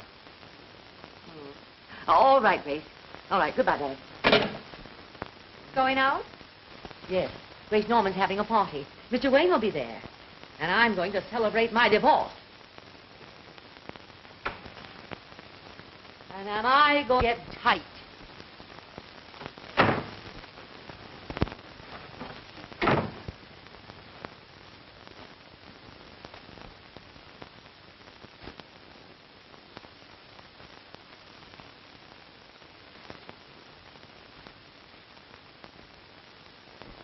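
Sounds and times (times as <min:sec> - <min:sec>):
film soundtrack hiss: 0:00.0 - 0:37.0.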